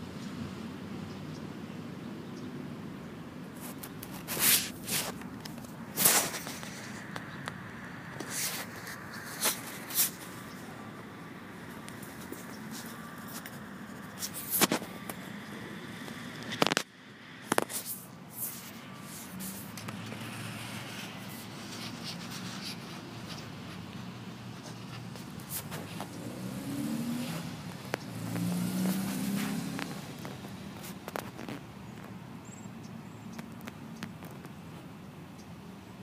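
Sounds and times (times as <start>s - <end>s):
distant road traffic: 0.0s - 36.0s.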